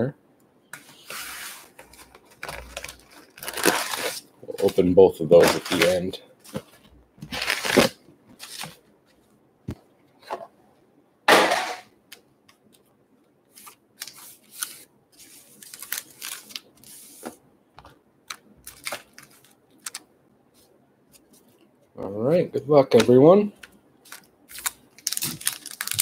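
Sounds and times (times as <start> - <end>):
foil packs crinkling: 1.8 - 8.8, 14.0 - 17.0, 18.3 - 20.0, 24.1 - 26.0.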